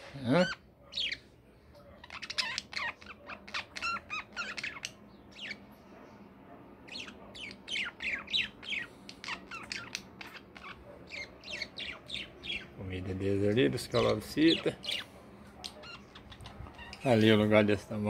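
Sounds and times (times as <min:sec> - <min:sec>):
budgerigar chirps and squawks: 0:00.3 - 0:01.3, 0:02.0 - 0:05.7, 0:06.8 - 0:12.8, 0:14.0 - 0:17.2.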